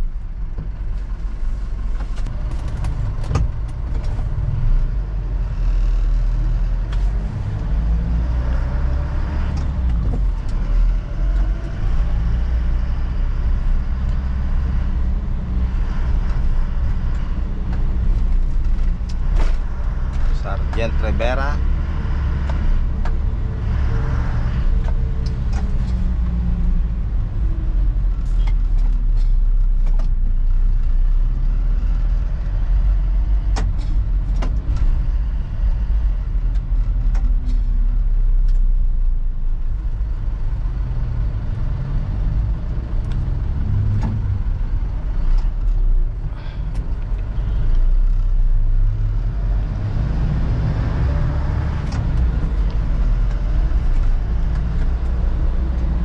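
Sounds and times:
road noise: 0.0s - 56.0s.

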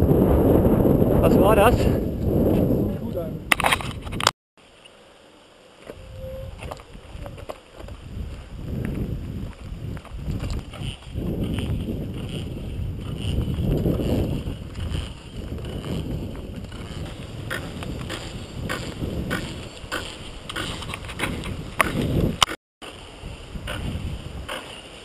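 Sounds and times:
wind on microphone: 0.0s - 4.3s, 5.9s - 24.8s
bike clicks and rattles: 3.5s - 4.3s, 6.6s - 22.6s
tyres rumbling on dirt trail: 5.7s - 25.0s.

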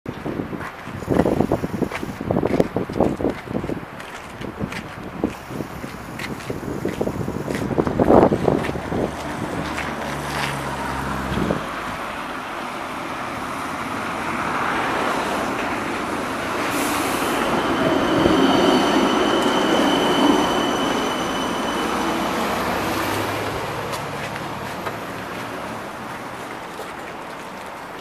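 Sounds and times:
tram wheels rumbling on track: 4.7s - 28.0s
steady high whine: 15.1s - 26.3s.

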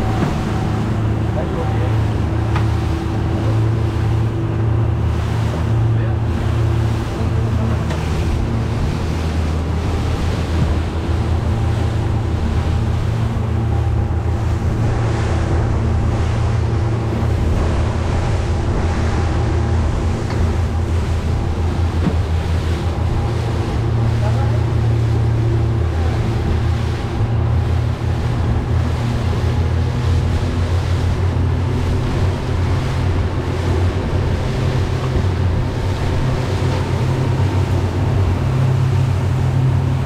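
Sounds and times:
boat engine droning: 0.0s - 40.0s
water rushing along hull: 0.0s - 40.0s
wind on microphone: 0.0s - 40.0s.

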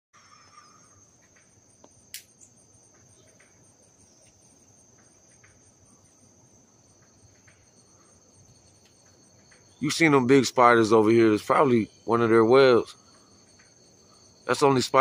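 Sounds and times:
insect chorus chirring: 0.2s - 15.0s
sharp click: 1.8s - 2.4s.

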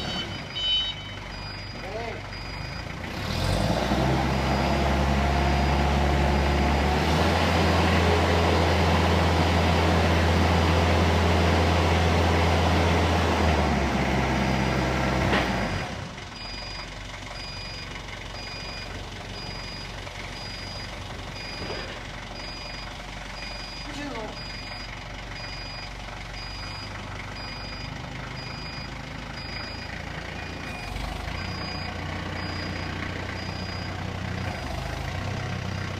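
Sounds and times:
warning beeper: 0.0s - 2.8s
diesel forklift engine revving: 0.0s - 35.9s.

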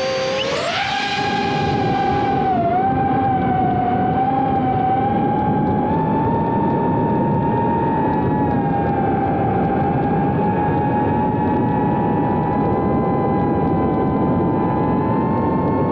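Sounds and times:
rushing noise: 0.0s - 2.9s
drone motors whining: 0.0s - 6.6s.

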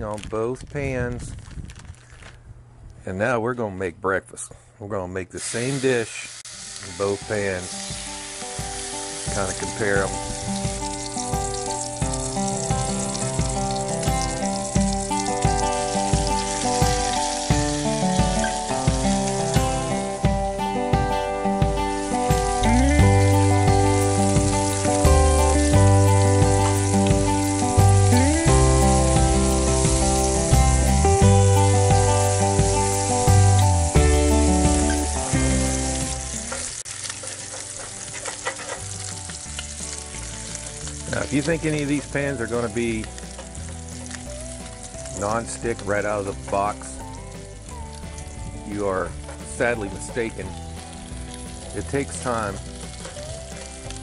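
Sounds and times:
bacon sizzling in a skillet: 5.4s - 20.7s, 21.6s - 54.0s
background music with steady beat: 7.3s - 36.5s
spatula scraping a pan: 36.5s - 39.2s.

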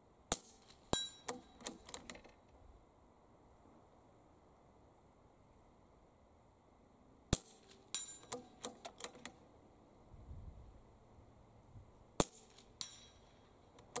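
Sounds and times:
bullet ringing on steel plate: 0.3s - 1.8s, 7.4s - 8.8s, 12.2s - 14.0s.

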